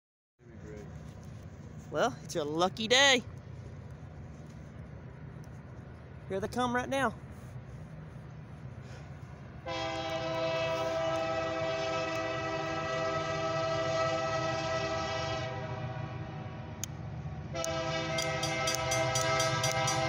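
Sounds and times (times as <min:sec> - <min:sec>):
diesel locomotive rumble: 0:00.4 - 0:20.0
locomotive air horn blasts: 0:09.6 - 0:16.8, 0:17.5 - 0:20.0.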